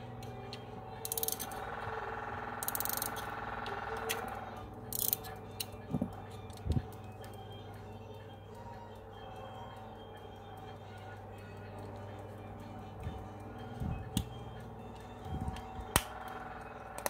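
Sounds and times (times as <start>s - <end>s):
metallic clicks and scrapes: 4.9s - 5.7s.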